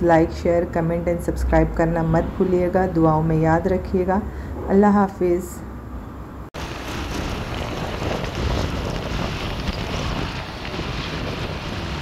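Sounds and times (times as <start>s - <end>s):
road and traffic noise: 0.0s - 12.0s
wind buffeting microphone: 6.6s - 12.0s.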